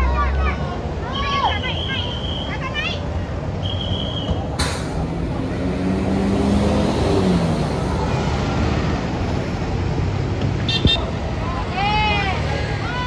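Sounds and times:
bus driving past: 0:00.0 - 0:13.0
road noise: 0:00.0 - 0:13.0
sharp click: 0:04.6 - 0:05.0.

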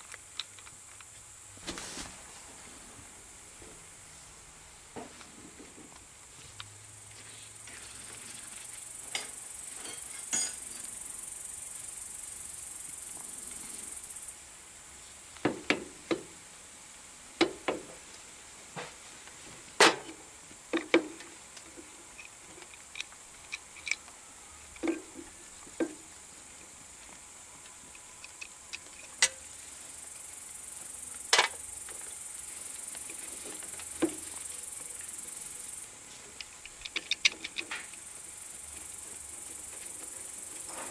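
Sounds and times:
steady high hiss: 0:00.0 - 0:40.9
metal parts clicking and knocking: 0:22.2 - 0:24.0, 0:36.4 - 0:38.0.

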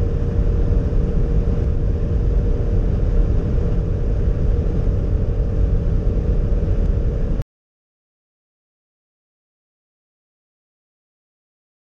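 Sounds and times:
car engine drone: 0:00.0 - 0:07.4
wind noise: 0:00.0 - 0:07.4.

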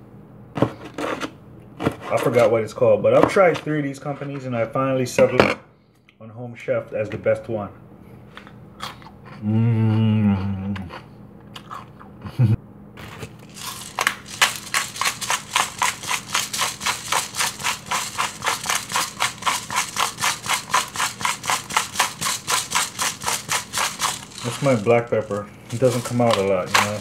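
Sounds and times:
man humming: 0:09.4 - 0:11.0
pepper grinder rasping clicks: 0:13.1 - 0:27.0.

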